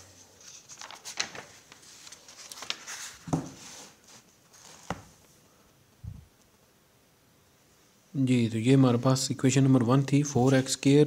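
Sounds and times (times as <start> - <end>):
notebook pages rustling: 0.2 - 5.3.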